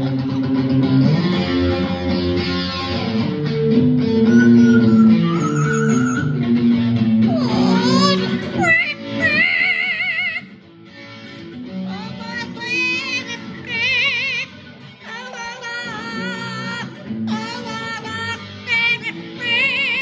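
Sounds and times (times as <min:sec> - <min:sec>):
electric guitar: 0:00.0 - 0:20.0
parrot singing high wavering notes: 0:04.3 - 0:06.4.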